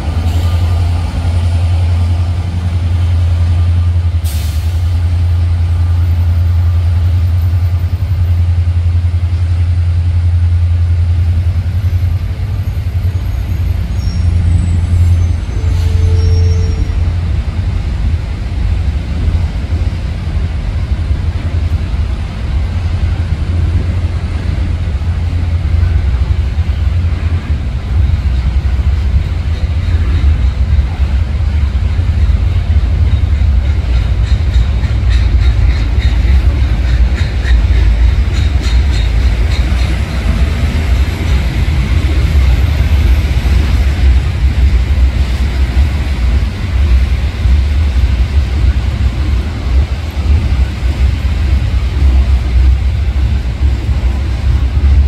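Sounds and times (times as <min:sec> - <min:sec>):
train wheels rumbling on rail: 0:00.0 - 0:55.0
rapid clicking of train wheels: 0:16.8 - 0:55.0.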